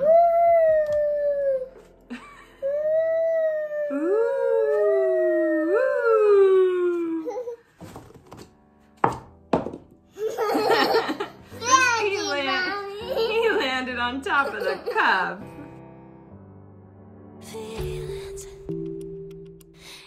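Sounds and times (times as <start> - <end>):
woman and girl making ghost sounds: 2.7 - 7.6.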